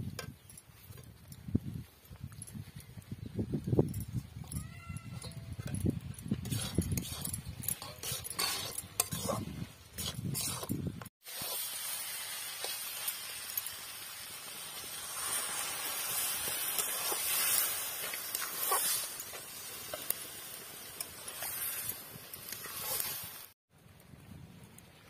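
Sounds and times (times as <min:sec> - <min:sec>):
metal spatula scraping pan: 0:06.4 - 0:10.8
curry sizzling in a pan: 0:11.2 - 0:23.6.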